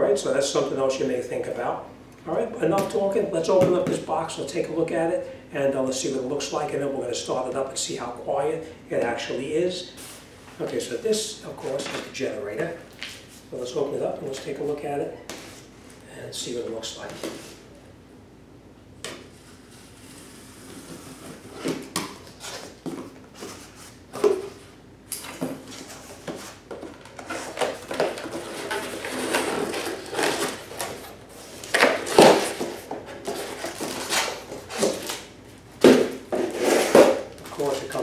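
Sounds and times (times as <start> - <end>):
cardboard flaps scraping: 25.4 - 38.0.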